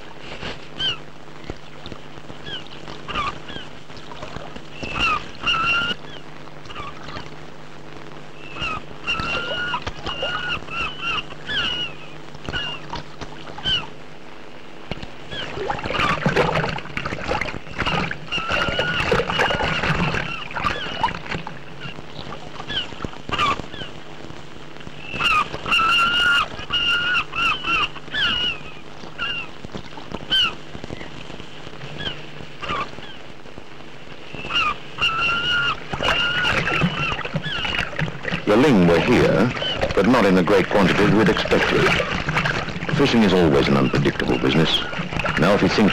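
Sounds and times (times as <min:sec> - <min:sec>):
boat engine hum: 0:00.0 - 0:45.9
seabirds calling: 0:00.0 - 0:45.9
rush of water: 0:14.9 - 0:23.6, 0:34.5 - 0:45.9.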